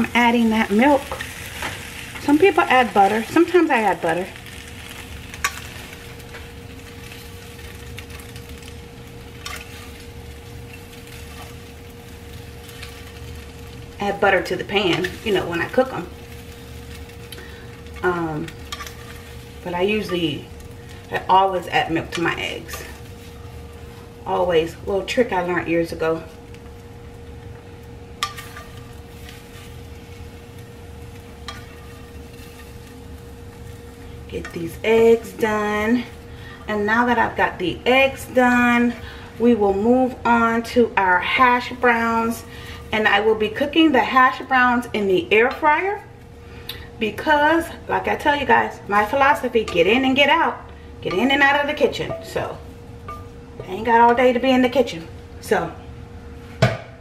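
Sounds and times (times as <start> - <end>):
eggs sizzling in a skillet: 0.0 - 57.0
faint steady hum: 0.0 - 57.0
spatula scraping a pan: 18.6 - 19.4, 31.4 - 32.9
utensil tapping pan: 51.1 - 54.2.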